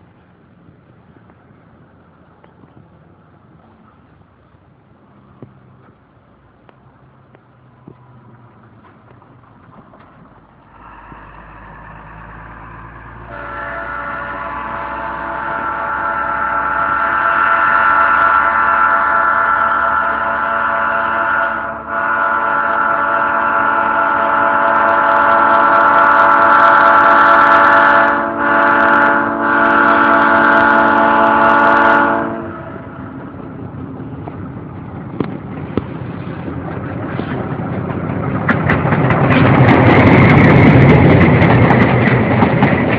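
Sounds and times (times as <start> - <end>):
train engine and wheels rumbling: 0.0 - 42.9
locomotive air horn: 10.7 - 33.0.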